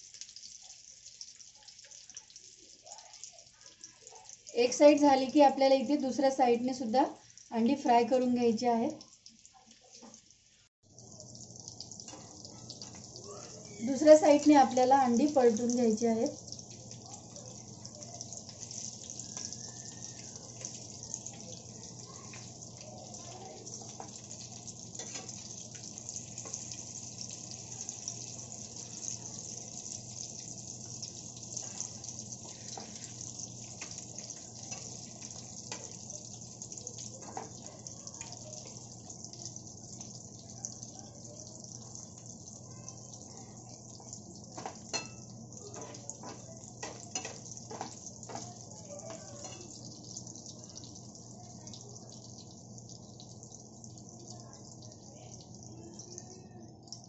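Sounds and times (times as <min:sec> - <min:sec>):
eggs sizzling in hot oil: 0:00.0 - 0:57.0
spatula scraping and tapping pan: 0:23.8 - 0:26.8, 0:31.6 - 0:36.0, 0:44.6 - 0:49.8.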